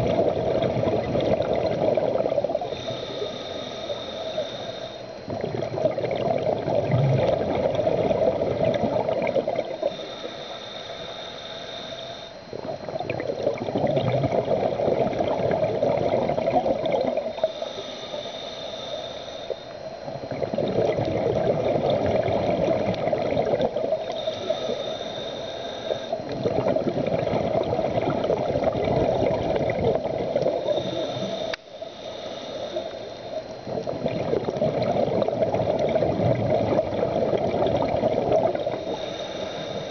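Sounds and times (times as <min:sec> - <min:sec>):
diver exhaling bubbles: 0:00.0 - 0:03.4, 0:05.3 - 0:10.0, 0:12.5 - 0:17.5, 0:20.2 - 0:24.8, 0:26.0 - 0:31.5, 0:33.7 - 0:39.9
regulator inhale whine: 0:00.0 - 0:39.9.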